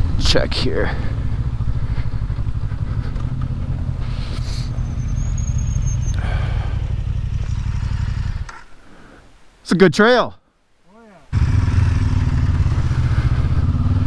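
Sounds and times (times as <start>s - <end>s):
motorcycle engine running at low revs: 0.0s - 8.5s, 11.3s - 14.0s.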